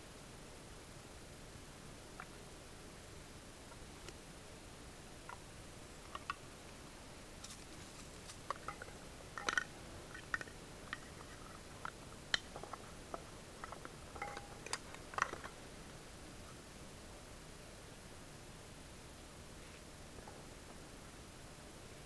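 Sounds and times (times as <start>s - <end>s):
cooking gear clicking and clinking: 8.5s - 12.9s, 13.6s - 15.6s.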